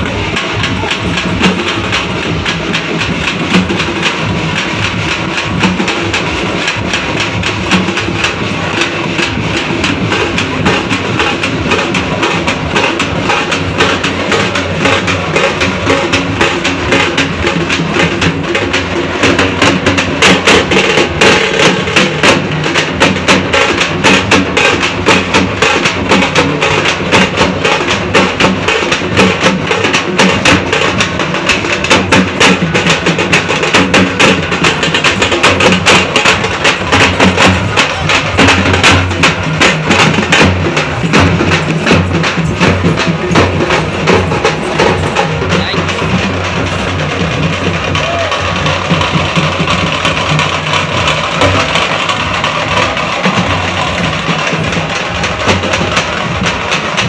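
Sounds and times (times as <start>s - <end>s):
drums beaten in fast rhythm: 0.0s - 57.0s.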